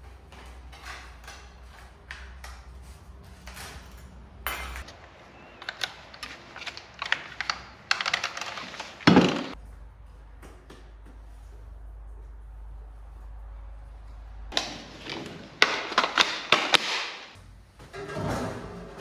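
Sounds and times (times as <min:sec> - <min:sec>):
hand tools and metal parts clanking: 0:00.0 - 0:08.4.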